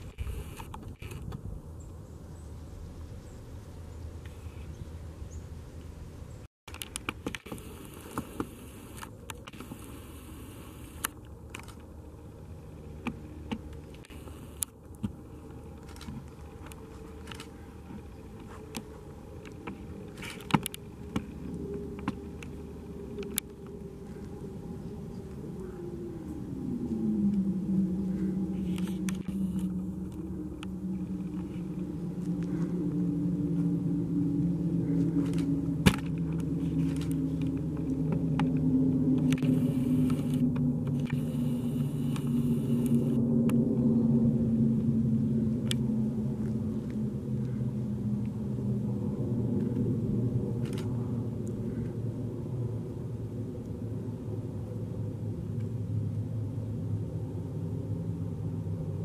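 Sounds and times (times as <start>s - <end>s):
low engine drone: 0.0s - 59.0s
hiss: 9.6s - 11.0s.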